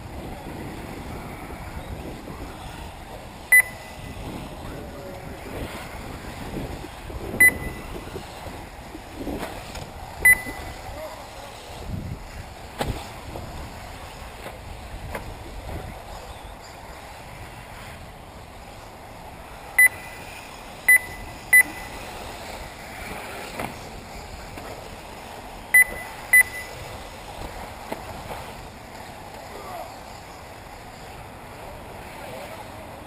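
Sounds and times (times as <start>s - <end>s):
outdoor background noise: 0.0s - 33.0s
short high electronic beeps: 3.5s - 3.9s, 7.4s - 7.8s, 10.2s - 10.7s, 20.9s - 21.9s, 25.8s - 26.8s.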